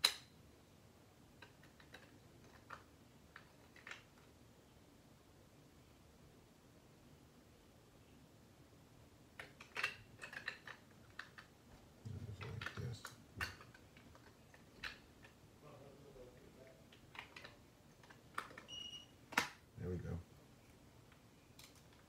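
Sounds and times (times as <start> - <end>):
plastic clicks and light knocks: 9.4 - 15.4.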